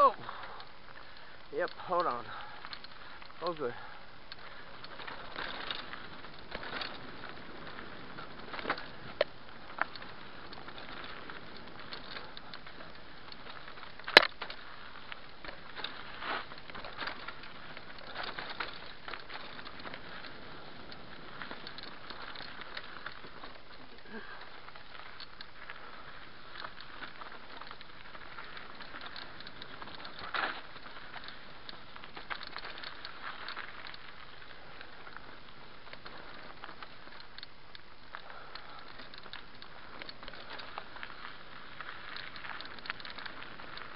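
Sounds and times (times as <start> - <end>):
bike rattling: 0.0 - 43.9
tyres crackling over stones: 0.0 - 43.9
bike knocking on rocks: 4.3 - 34.1.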